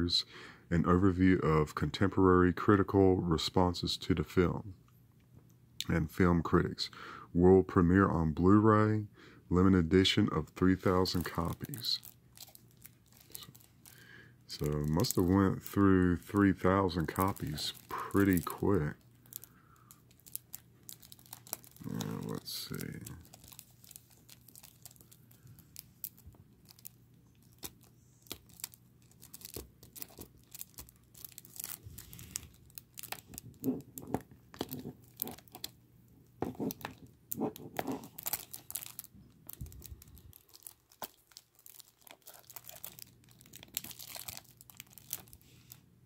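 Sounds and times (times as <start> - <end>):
plastic shrink wrap crinkling: 10.6 - 35.8, 36.4 - 45.9
small clicks and scratches: 33.1 - 35.7, 36.4 - 38.2.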